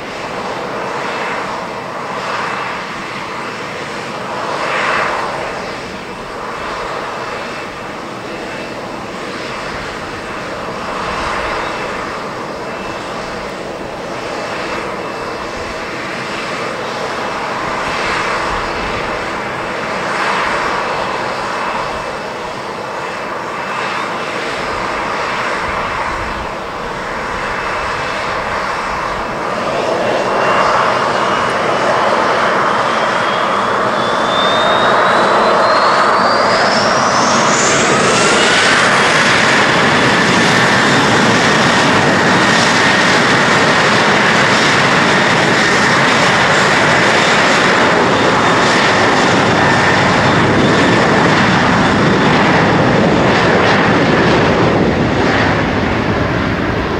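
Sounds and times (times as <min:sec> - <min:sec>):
jet engines spooling up: 0:00.0 - 0:56.9.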